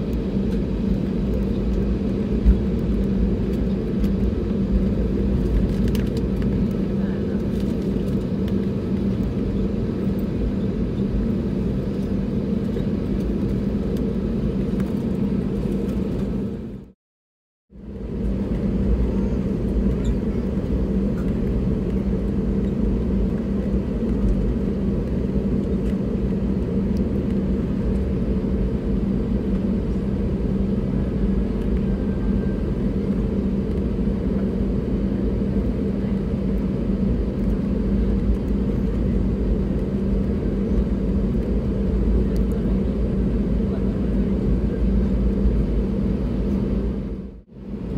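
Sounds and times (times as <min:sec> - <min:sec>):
aircraft engines idling rumble: 0:00.0 - 0:17.0, 0:17.8 - 0:47.9
steady cabin hum: 0:17.8 - 0:47.9.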